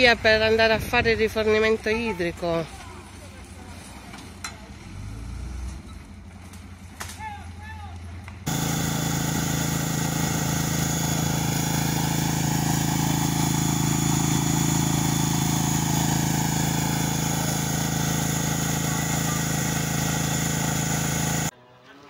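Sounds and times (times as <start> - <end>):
small pump engine running: 8.5 - 21.5.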